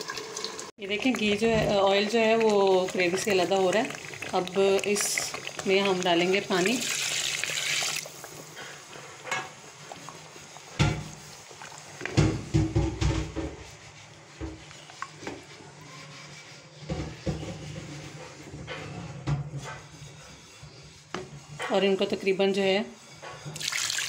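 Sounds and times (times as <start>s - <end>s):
wooden spoon knocking metal pot: 12.1s - 13.6s.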